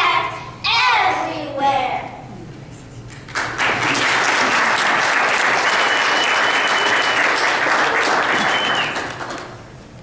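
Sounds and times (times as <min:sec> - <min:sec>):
audience applauding: 0:03.2 - 0:09.6
high whistle: 0:05.6 - 0:07.5, 0:08.3 - 0:09.2.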